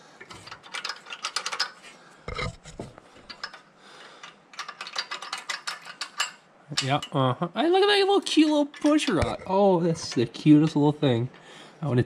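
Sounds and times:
metal tools clinking: 0.2 - 2.5, 4.2 - 7.2, 8.6 - 10.3.

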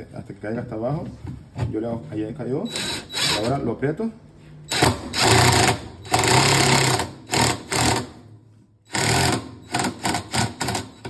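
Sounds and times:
cordless drill running in bursts: 2.7 - 3.5, 4.7 - 8.1, 8.9 - 11.0.

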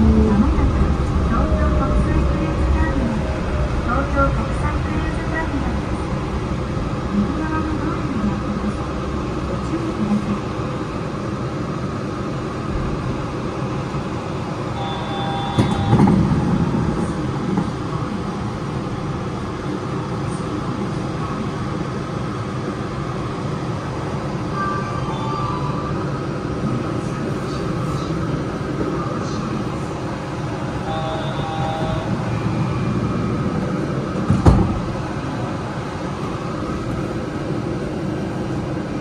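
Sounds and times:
train running noise: 0.0 - 39.0
brief high tones: 14.8 - 16.1, 30.8 - 32.4
train bump: 15.2 - 17.8, 34.1 - 35.1.

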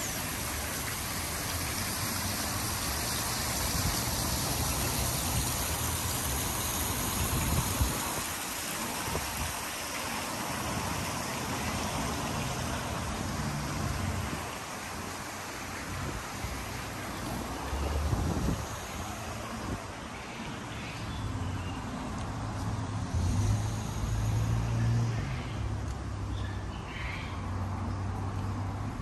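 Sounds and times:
water falling into a pool: 0.0 - 20.7.

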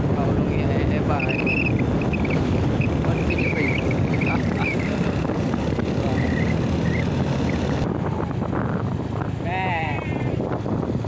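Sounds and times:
motorcycle engine running: 0.0 - 11.0
wind rushing over microphone: 0.0 - 11.0
faint high wavering chirps: 1.1 - 4.9.

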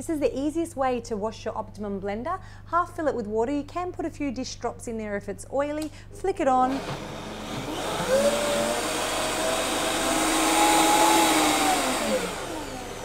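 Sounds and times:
blender motor whine: 6.7 - 13.0.

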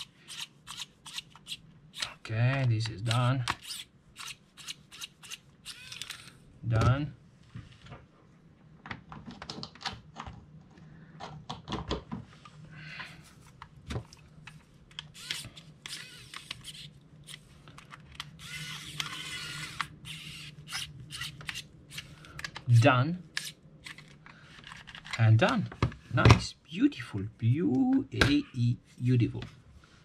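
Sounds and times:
electric screwdriver whirring: 3.5 - 6.4, 15.1 - 17.4, 18.3 - 22.1.

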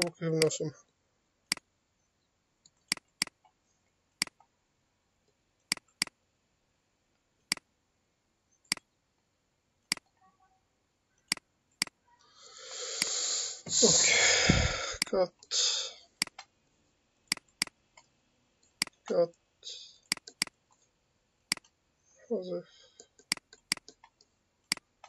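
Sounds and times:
computer mouse buttons clicking: 2.6 - 3.4, 5.7 - 6.2, 9.9 - 10.2, 16.2 - 16.5, 17.3 - 19.0, 20.0 - 20.8, 21.5 - 21.8, 23.0 - 24.9.

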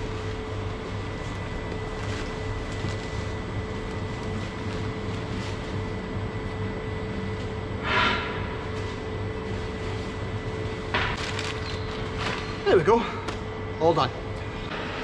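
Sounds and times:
sawdust rustling from plastic sack: 0.0 - 7.3, 8.6 - 12.9
machine hum: 0.0 - 15.0.

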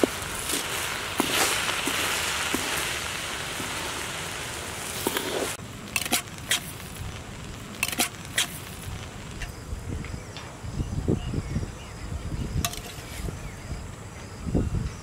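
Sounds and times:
rice sizzling in wok: 0.0 - 9.4.

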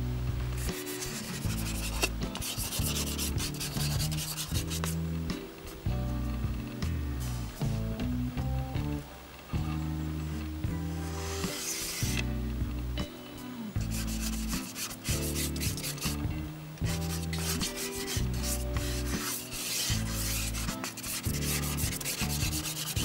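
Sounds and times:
pastel scraping on sanded paper: 0.6 - 5.0, 10.9 - 12.2, 13.8 - 16.2, 16.8 - 23.0.

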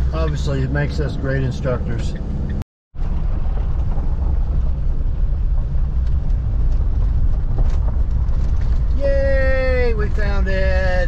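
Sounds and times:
engine and tyre rumble: 0.0 - 11.0
gravel pops: 3.0 - 10.4.

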